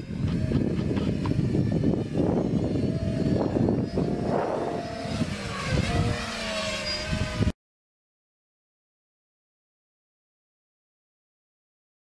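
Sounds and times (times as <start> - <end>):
rushing rumble: 0.0 - 7.5
electric drone buzzing: 0.0 - 7.6.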